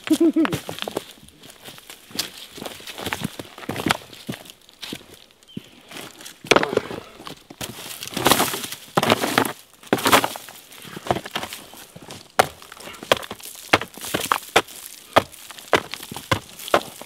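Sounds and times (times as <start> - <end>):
boots crunching on gravel: 0.0 - 17.0
plastic boards knocking on stones: 6.4 - 6.9, 7.6 - 10.4, 12.4 - 17.0.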